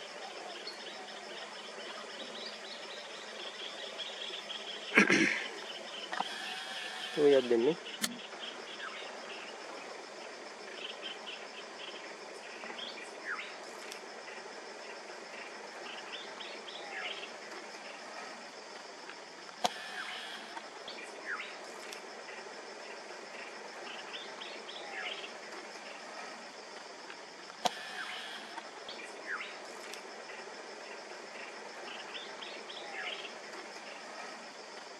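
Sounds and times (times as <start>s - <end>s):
background hiss: 0.0s - 34.9s
high insect trill: 0.0s - 34.9s
sharp click: 8.0s - 8.2s.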